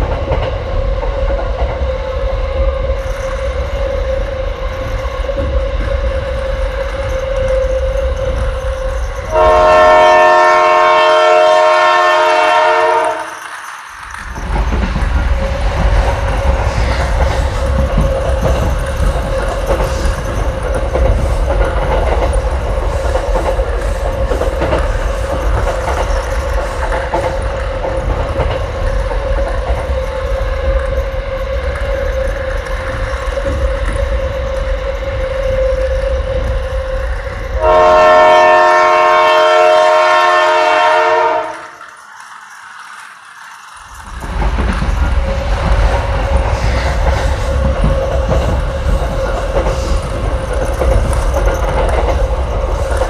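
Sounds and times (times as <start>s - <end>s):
electronic train horn: 9.3s - 13.4s, 37.6s - 41.8s.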